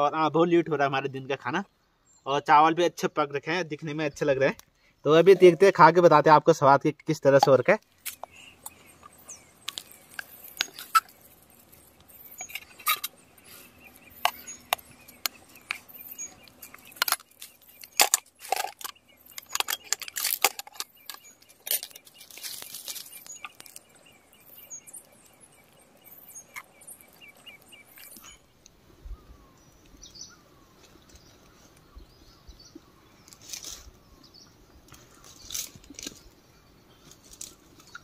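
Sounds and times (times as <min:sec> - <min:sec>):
faint bird chirps: 0:07.9 - 0:38.0.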